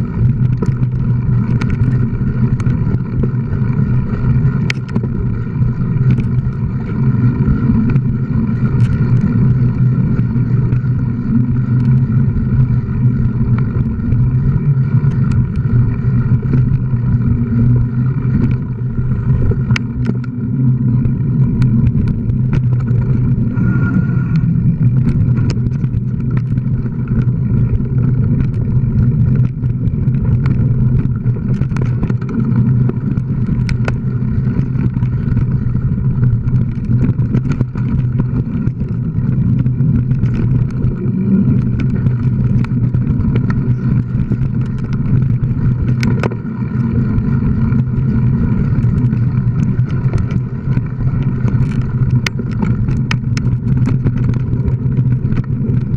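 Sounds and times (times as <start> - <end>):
bike buzzing hum: 0.0 - 55.9
bike rattling over bumps: 0.0 - 55.9.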